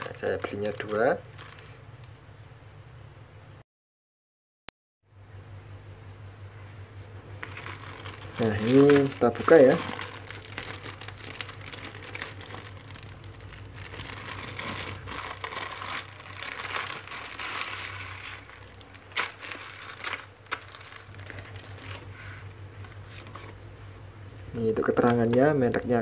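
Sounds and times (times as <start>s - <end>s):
plastic bag crinkling: 0.0s - 2.0s, 7.4s - 23.6s
steady low hum: 0.0s - 3.6s, 5.1s - 26.0s.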